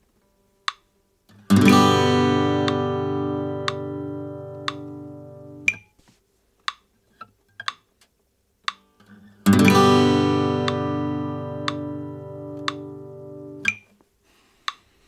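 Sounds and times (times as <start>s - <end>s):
finger and string noises: 0.7s - 6.0s, 6.7s - 7.9s, 8.6s - 14.0s
acoustic guitar chord strum: 1.4s - 5.9s, 9.0s - 13.8s
click track ticking: 3.6s - 3.9s, 4.5s - 5.0s, 7.6s - 7.9s, 8.6s - 8.8s, 11.6s - 11.9s, 12.5s - 12.9s, 13.6s - 13.9s.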